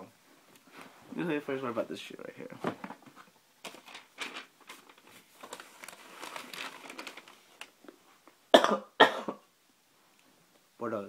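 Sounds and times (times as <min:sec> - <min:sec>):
wrapping crinkling and rustling: 0:02.9 - 0:08.4.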